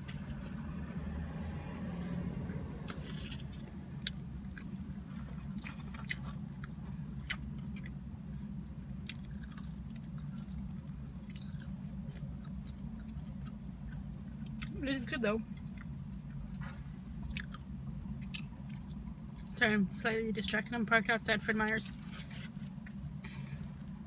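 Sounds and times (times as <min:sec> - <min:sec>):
steady low hum: 0:00.0 - 0:24.0
person chewing: 0:02.9 - 0:08.0, 0:09.0 - 0:14.7, 0:17.2 - 0:17.6.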